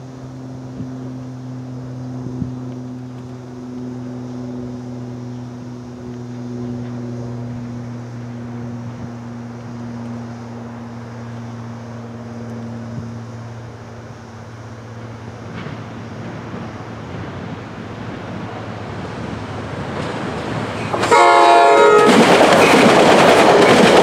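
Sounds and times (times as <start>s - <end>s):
steady mechanical hum: 0.0s - 24.0s
wind noise on microphone: 2.1s - 2.7s.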